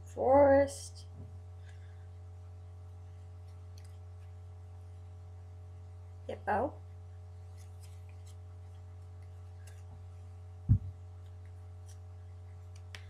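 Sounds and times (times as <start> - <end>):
low electrical hum: 0.0 - 13.0
trading cards being handled: 3.2 - 4.5, 7.4 - 13.0
loud low thump: 10.7 - 10.9.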